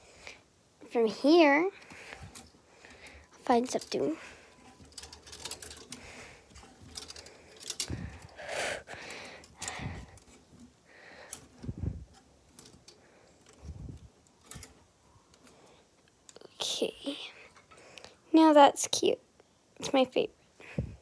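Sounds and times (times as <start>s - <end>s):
plastic hangers scraping on rod: 1.7s - 15.6s.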